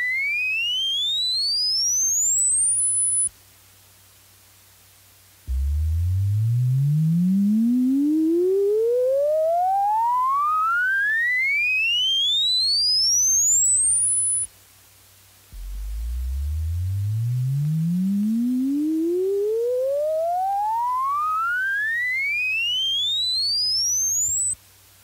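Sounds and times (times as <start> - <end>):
sine tone sweeping upward: 5.5 - 14.4, 15.6 - 24.6.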